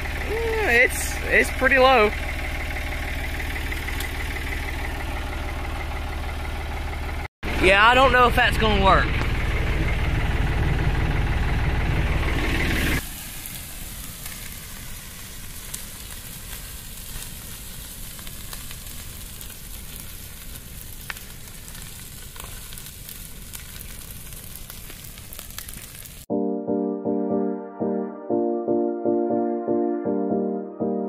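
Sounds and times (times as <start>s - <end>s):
tractor engine running: 0.0s - 26.2s
brush fire hissing and crackling: 0.0s - 26.3s
music: 26.3s - 31.0s.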